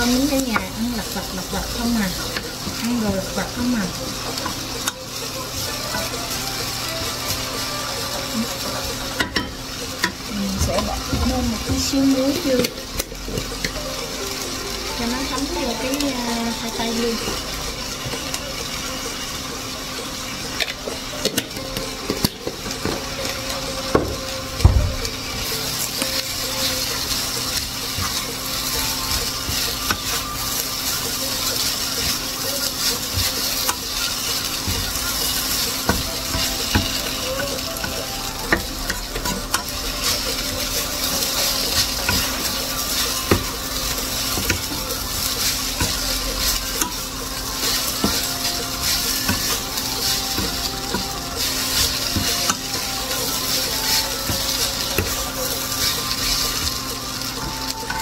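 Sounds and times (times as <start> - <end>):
potatoes sizzling in a frying pan: 0.0 - 58.0
wooden spatula scraping a pan: 25.7 - 58.0.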